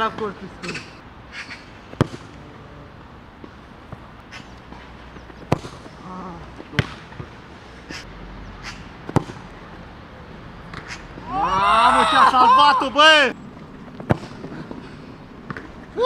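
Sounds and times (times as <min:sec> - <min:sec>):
football thuds: 0:01.9 - 0:02.3, 0:04.7 - 0:05.9, 0:06.6 - 0:07.3, 0:09.0 - 0:09.4, 0:14.0 - 0:14.8.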